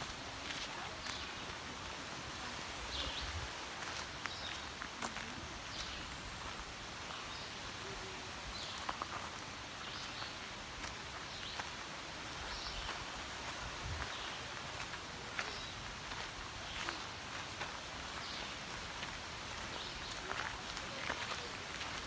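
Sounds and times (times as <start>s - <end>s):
footsteps on gravel: 0.0s - 1.9s, 2.9s - 6.6s, 12.8s - 22.0s
steady outdoor hiss: 0.0s - 22.0s.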